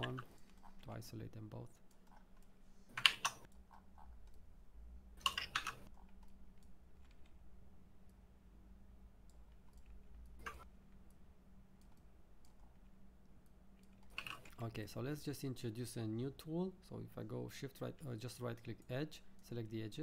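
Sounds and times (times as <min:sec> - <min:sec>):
faint steady hum: 0:00.0 - 0:20.0
mouse buttons clicking: 0:02.9 - 0:03.6.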